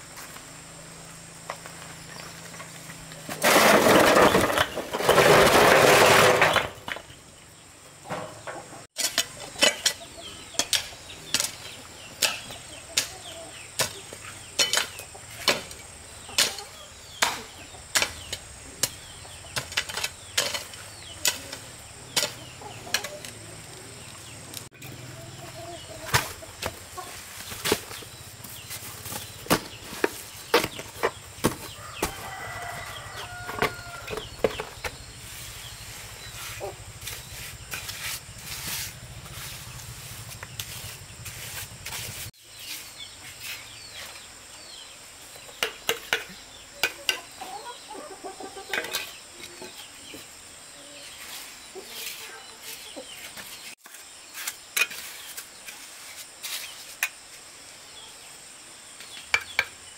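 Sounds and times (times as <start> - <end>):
chickens clucking: 8.1 - 42.3, 45.5 - 53.7.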